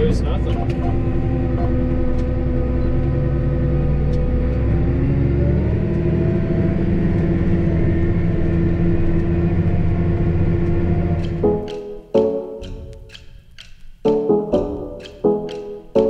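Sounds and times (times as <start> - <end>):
tractor diesel engine running: 0.0 - 11.8.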